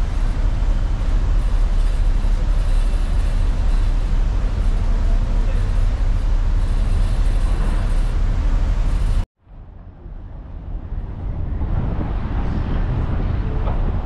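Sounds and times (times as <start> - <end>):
ferry engine rumble: 0.0 - 14.0
wind noise on microphone: 0.0 - 14.0.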